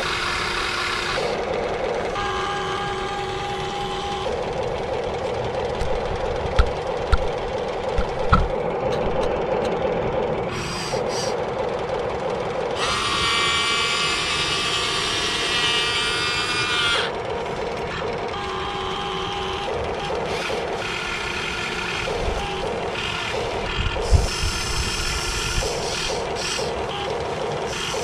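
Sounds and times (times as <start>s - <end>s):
low steady hum: 0.0s - 13.3s
electric gear motors whining: 0.0s - 28.0s.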